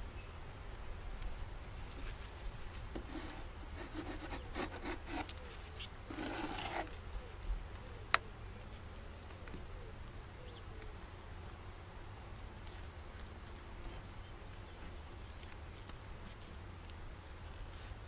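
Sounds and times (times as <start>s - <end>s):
hive tool scraping wooden frames: 2.9s - 5.4s, 6.1s - 7.0s.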